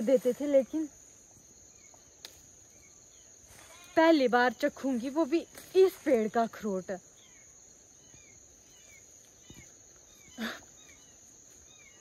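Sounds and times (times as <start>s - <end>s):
insect chirps: 0.0s - 12.0s
insects droning: 0.0s - 12.0s.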